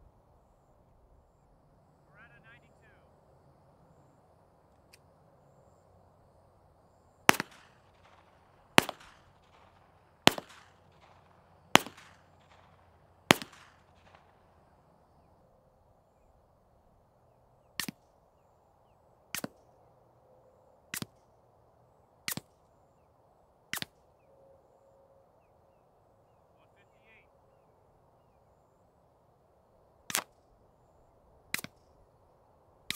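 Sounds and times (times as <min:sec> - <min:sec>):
suppressed pistol shots: 0:07.3 - 0:14.3, 0:19.3 - 0:19.6, 0:23.7 - 0:24.0, 0:30.1 - 0:30.4, 0:31.5 - 0:31.9
pistol shots with echo: 0:07.3 - 0:14.6.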